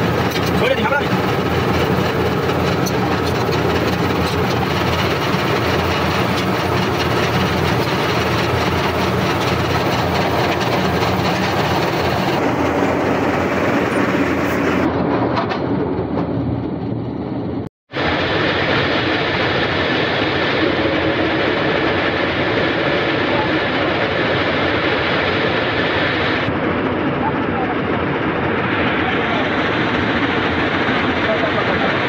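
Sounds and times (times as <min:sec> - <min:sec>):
drilling rig clatter and rumble: 0:00.0 - 0:17.7.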